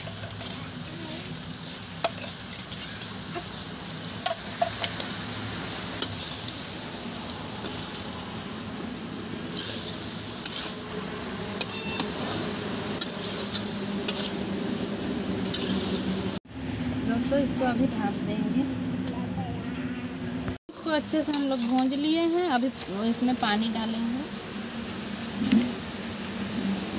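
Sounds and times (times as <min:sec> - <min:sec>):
meat sizzling in a pan: 0:00.0 - 0:16.4.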